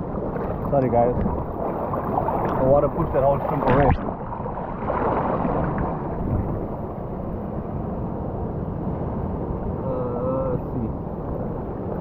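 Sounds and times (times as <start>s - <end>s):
seawater washing over rocks: 0.0s - 6.9s.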